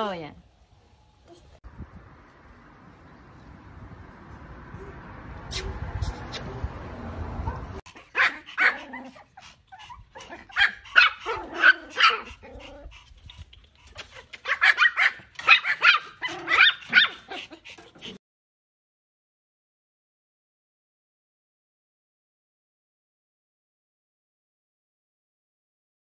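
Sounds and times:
puppy yapping: 0:07.4 - 0:13.0, 0:13.9 - 0:17.6.

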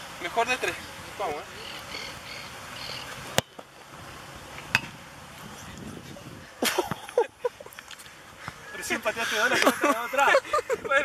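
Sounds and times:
ball hitting crossbar: 0:03.3 - 0:03.7, 0:04.6 - 0:05.0.

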